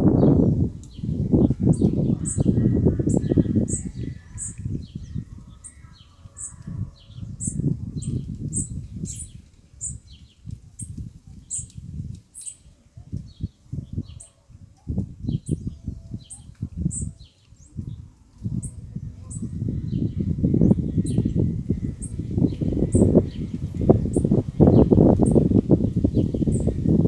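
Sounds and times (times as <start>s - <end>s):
small birds chirping: 0.1s - 27.0s.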